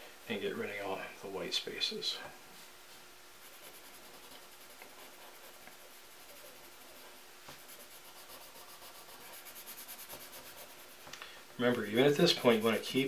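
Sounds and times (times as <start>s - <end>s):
paper rubbing strokes: 3.4s - 11.1s, 11.8s - 13.0s.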